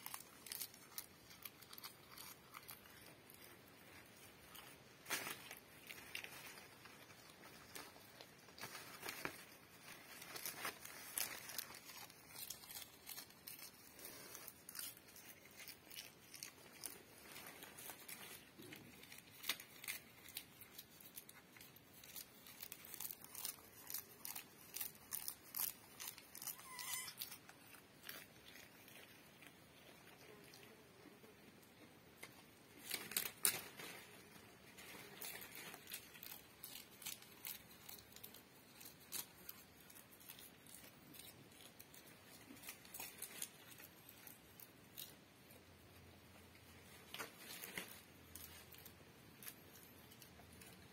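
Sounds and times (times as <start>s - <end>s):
goat chewing leafy branches: 0.0s - 30.8s, 32.2s - 45.4s, 46.4s - 50.9s
faint high animal call: 26.4s - 27.4s.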